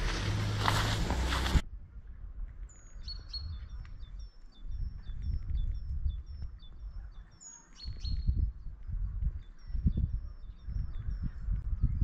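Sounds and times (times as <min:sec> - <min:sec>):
low uneven rumble: 0:00.0 - 0:01.6
songbird singing: 0:00.0 - 0:12.0.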